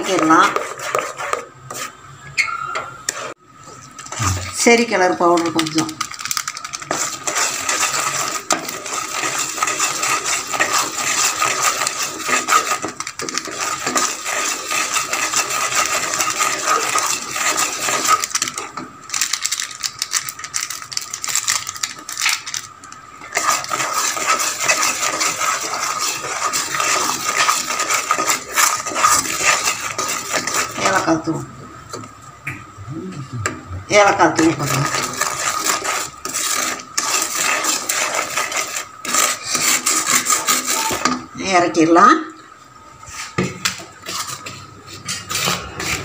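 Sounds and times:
spatula scraping a pan: 0.0s - 3.4s, 6.5s - 18.9s, 23.2s - 32.0s, 34.1s - 41.3s, 43.1s - 46.0s
syrup bubbling in a pan: 6.2s - 31.1s, 34.5s - 41.2s.

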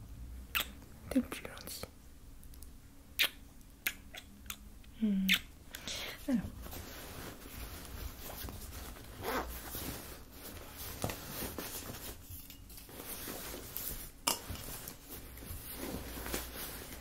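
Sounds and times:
rummaging in a handbag: 6.6s - 17.0s.

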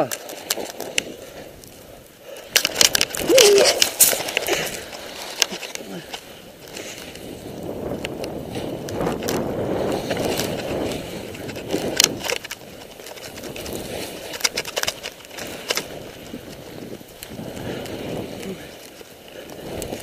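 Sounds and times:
skis scraping down snow: 0.0s - 20.0s.

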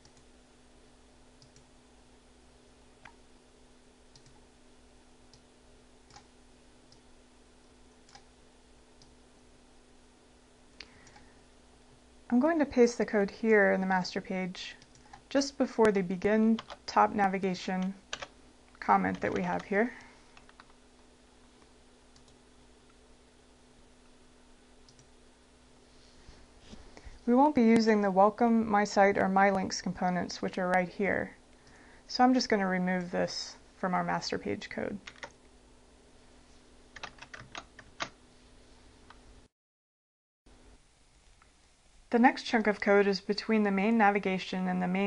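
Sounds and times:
low steady hum: 0.0s - 39.5s, 40.5s - 45.0s
keyboard clicks: 4.1s - 4.4s, 6.1s - 6.3s, 8.0s - 8.3s, 16.6s - 16.9s, 17.8s - 18.3s, 19.0s - 20.8s, 22.2s - 22.4s, 35.0s - 35.4s, 37.0s - 38.2s
faint computer mouse clicks: 10.8s - 11.3s.

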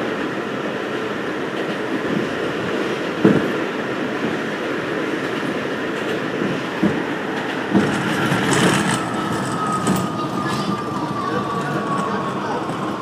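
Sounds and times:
train wheels rumbling on rail: 0.0s - 13.0s
rail joint clacks: 5.2s - 13.0s.

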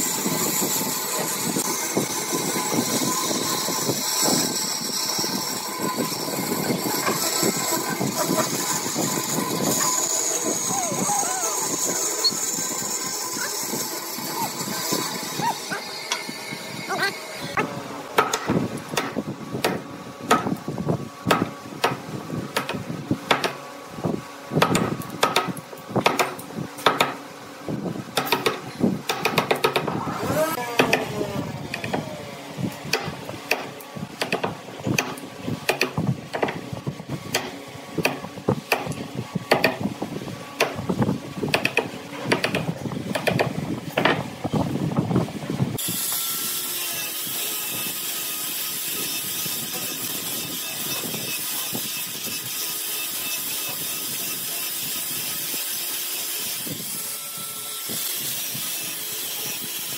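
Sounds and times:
angle grinder hissing: 0.0s - 17.6s.

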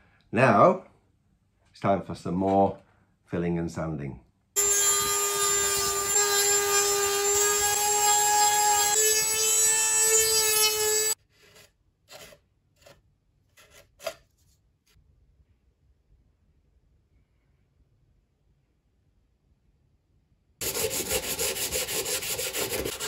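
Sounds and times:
rotary tool sanding whine: 4.6s - 11.2s, 20.6s - 23.0s
putty knife scraping: 11.2s - 14.5s, 20.6s - 23.0s.

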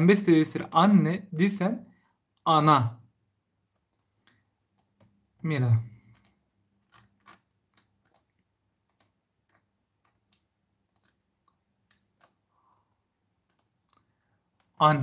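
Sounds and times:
faint computer clicks: 3.8s - 14.8s.

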